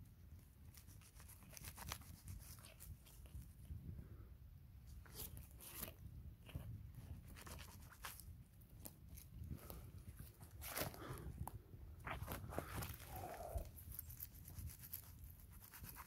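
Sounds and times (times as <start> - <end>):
dry leaves and twigs crackling: 7.2 - 15.8.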